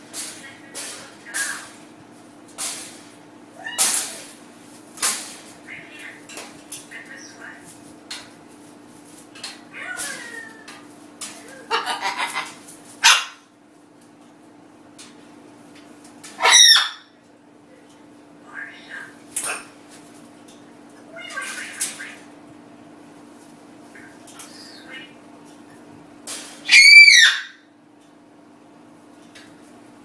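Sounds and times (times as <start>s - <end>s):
steady low hum: 0.0s - 26.7s
macaw harsh calls and chatter: 11.5s - 13.4s, 16.4s - 17.1s, 26.7s - 27.7s.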